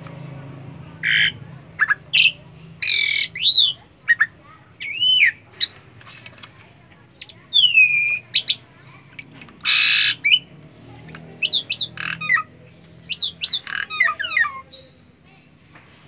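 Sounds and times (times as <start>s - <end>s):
starling calling and chattering: 0.1s - 6.0s, 7.0s - 15.6s
harsh bird squawk: 1.0s - 5.8s, 7.2s - 8.7s, 9.6s - 10.5s, 11.4s - 15.0s.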